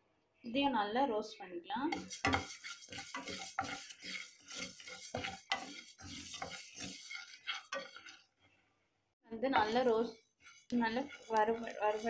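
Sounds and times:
spatula scraping a frying pan: 1.9 - 8.6, 9.5 - 12.0.

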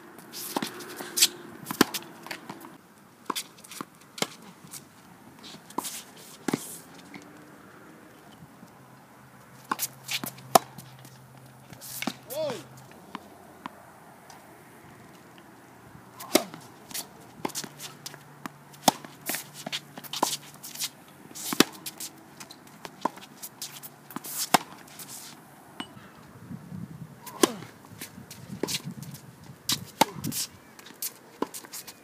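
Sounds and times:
racket striking tennis ball: 0.4 - 2.7, 9.7 - 10.8, 11.8 - 12.6, 16.2 - 25.0, 27.2 - 27.8, 29.7 - 30.5.

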